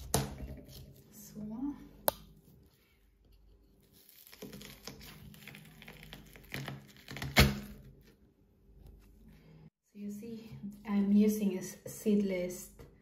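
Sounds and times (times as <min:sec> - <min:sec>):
knife cutting watermelon rind: 0:00.0 - 0:01.2, 0:02.0 - 0:08.0
watermelon rind cracking: 0:03.9 - 0:07.9.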